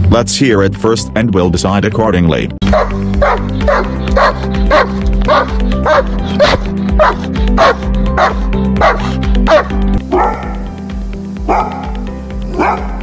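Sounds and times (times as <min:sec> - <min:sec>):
background music: 0:00.0 - 0:13.0
dog barking slowly: 0:02.6 - 0:10.7, 0:11.4 - 0:13.0
dog barking sharply: 0:02.7 - 0:10.6, 0:11.5 - 0:13.0.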